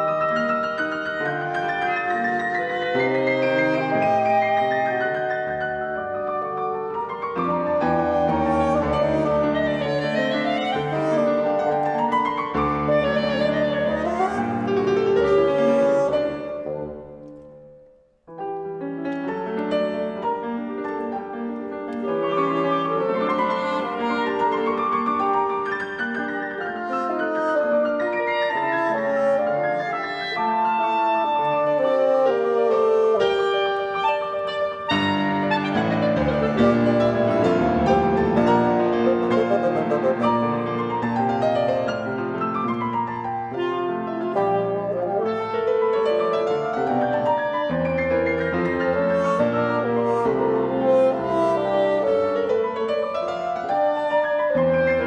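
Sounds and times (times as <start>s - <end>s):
bassoon: 0.0s - 17.3s, 21.9s - 55.0s
clarinet: 0.0s - 55.0s
piano: 0.0s - 55.0s.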